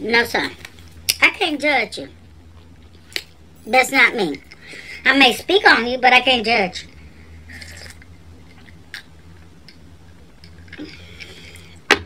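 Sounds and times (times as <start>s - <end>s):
faint low hum: 0.0s - 12.0s
person sipping and swallowing: 7.5s - 9.1s.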